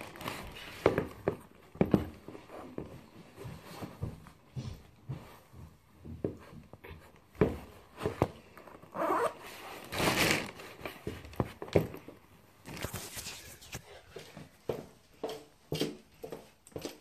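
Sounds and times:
rustling: 0:07.1 - 0:14.2
zip pulled: 0:08.9 - 0:10.2.

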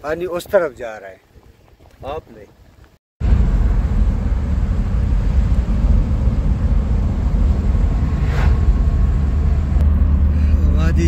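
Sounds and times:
road rumble: 0:03.2 - 0:11.0
passing vehicle whoosh: 0:03.3 - 0:11.0.

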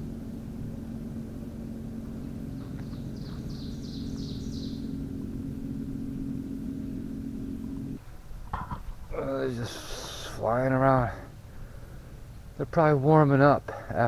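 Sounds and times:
motorboat engine hum: 0:00.0 - 0:14.0
bird song: 0:01.4 - 0:07.1.

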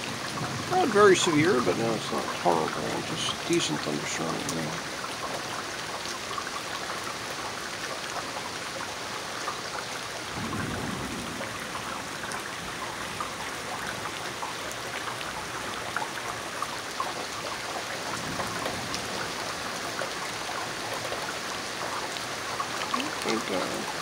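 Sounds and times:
heavy rain falling: 0:00.0 - 0:24.0
raindrops ticking on surfaces: 0:00.0 - 0:24.0
low thunder rumble: 0:10.3 - 0:12.2.

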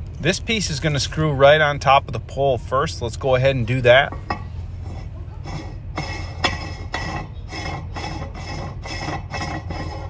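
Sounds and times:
steady low hum: 0:00.0 - 0:10.0
metal plate scraping on threads: 0:04.1 - 0:10.0.

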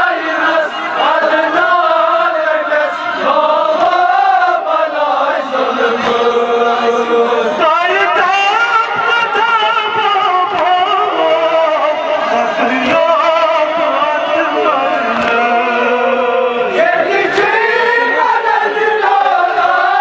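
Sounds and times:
man singing into microphone: 0:00.0 - 0:20.0
men chanting together: 0:00.0 - 0:20.0.

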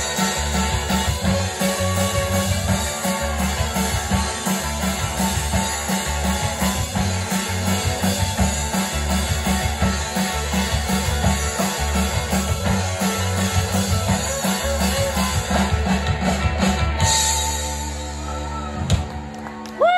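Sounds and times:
rock band playing: 0:00.0 - 0:19.9.

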